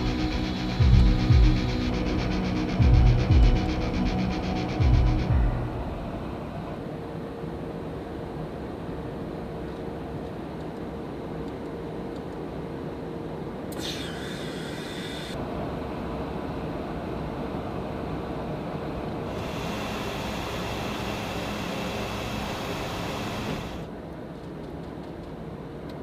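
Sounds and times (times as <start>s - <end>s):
rushing air: 0.0s - 7.1s
aircraft engines droning: 0.0s - 24.2s
faint steady hum: 0.0s - 26.0s.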